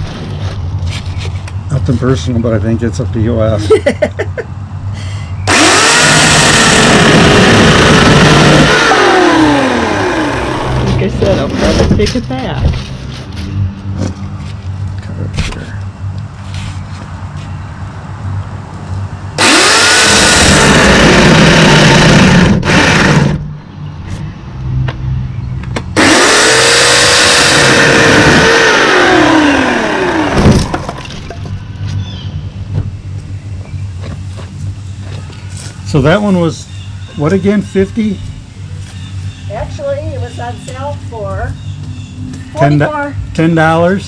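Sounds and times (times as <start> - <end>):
electric chainsaw cutting log: 5.5 - 11.8, 19.4 - 23.4, 26.0 - 31.1.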